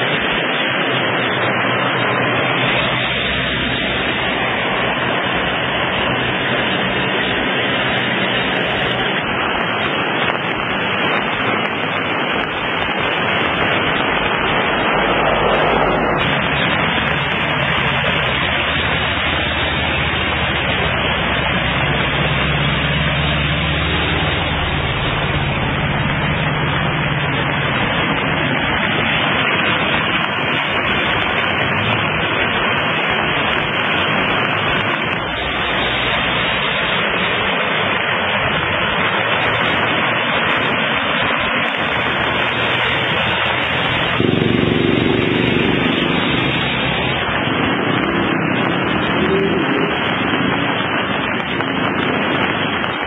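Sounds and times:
vehicle engine droning: 0.0 - 53.0
water and traffic hiss: 0.0 - 53.0.

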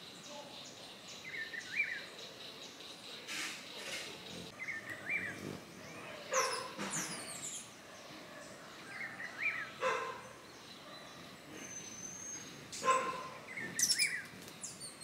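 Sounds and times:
chirping bird calls: 0.0 - 15.0
dog barking: 6.0 - 6.8, 9.8 - 11.2, 12.8 - 13.5.

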